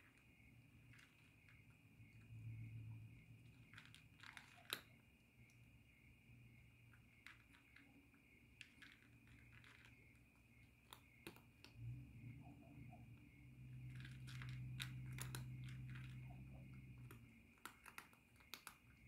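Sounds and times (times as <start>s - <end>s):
cat crunching and chewing food: 0.0s - 2.4s, 3.0s - 5.6s, 6.7s - 12.1s, 13.6s - 19.0s
small clicks: 3.5s - 5.6s, 13.8s - 19.0s.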